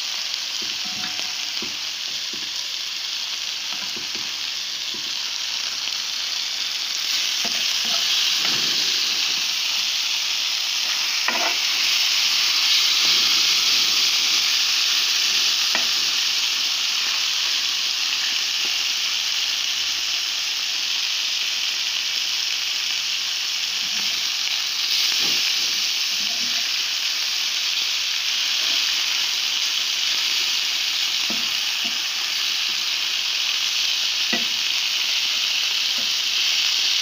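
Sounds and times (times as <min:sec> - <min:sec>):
sausages sizzling in hot fat: 0:00.0 - 0:37.0.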